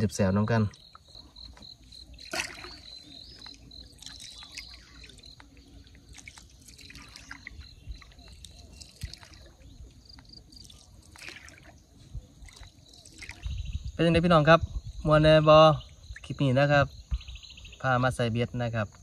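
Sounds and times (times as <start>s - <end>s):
trickling and dripping water: 0.0s - 14.3s
insect chirping in rapid pulses: 0.0s - 19.0s.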